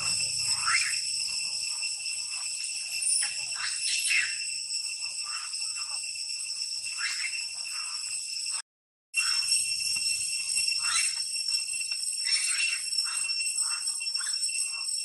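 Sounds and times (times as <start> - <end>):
short high calls: 0.0 - 4.5
high-pitched insect chorus: 0.0 - 8.6, 9.2 - 15.0.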